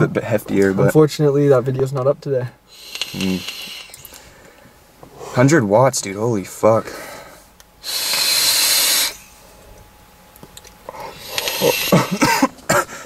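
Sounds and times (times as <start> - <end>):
breathy vape hiss: 2.6 - 5.5, 6.8 - 9.5, 10.8 - 13.0.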